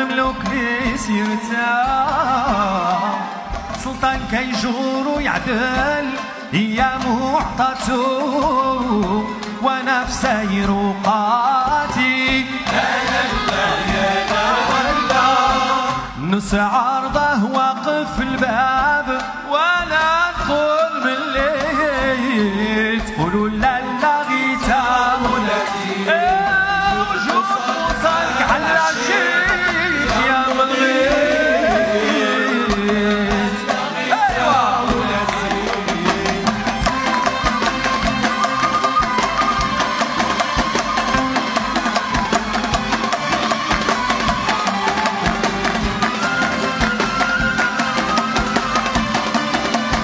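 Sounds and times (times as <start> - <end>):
violins playing gliding melody: 0.0 - 16.3, 20.5 - 50.0
hand drum rhythm: 0.0 - 50.0.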